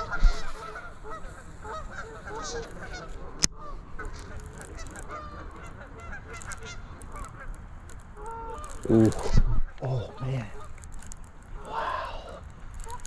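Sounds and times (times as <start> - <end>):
geese honking: 0.0 - 10.8.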